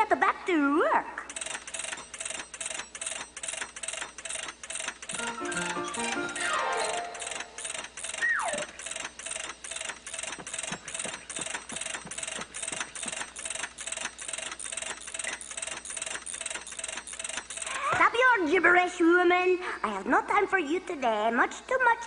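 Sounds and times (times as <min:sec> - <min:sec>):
cartoon ratchet wrench clicking: 0:01.3 - 0:18.0
notes falling in pitch: 0:05.2 - 0:07.6
whistle-like tone sliding down: 0:08.2 - 0:08.7.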